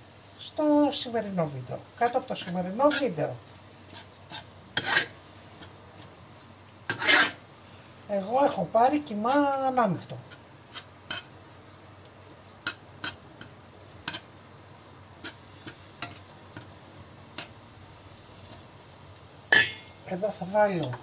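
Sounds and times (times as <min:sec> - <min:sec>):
metal masher tapping on a pan: 0:19.5 - 0:20.0.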